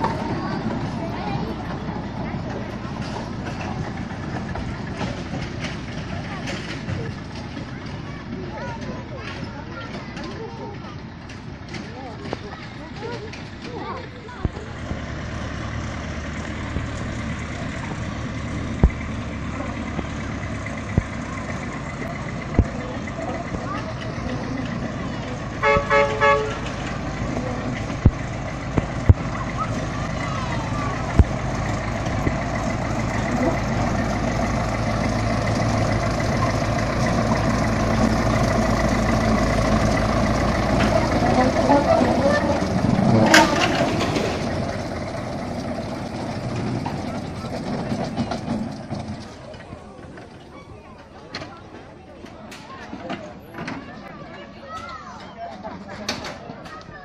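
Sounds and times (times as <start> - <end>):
small engine idling: 0.0 - 54.2
low thumps: 17.9 - 23.0, 26.6 - 49.1.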